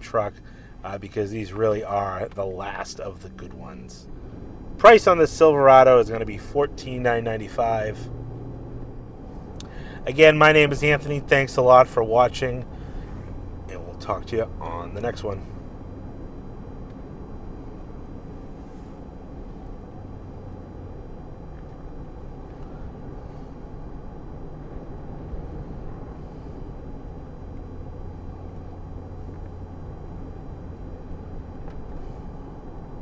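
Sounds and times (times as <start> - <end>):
pickup engine and road noise: 0.0 - 33.0.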